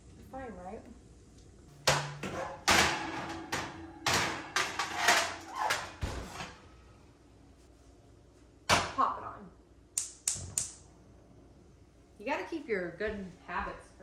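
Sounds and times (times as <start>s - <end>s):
dishes and utensils clinking: 1.9s - 6.1s.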